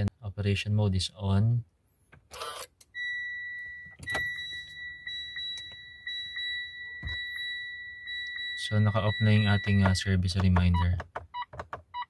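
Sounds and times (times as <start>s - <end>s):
high-pitched dashboard tone: 2.9s - 10.9s.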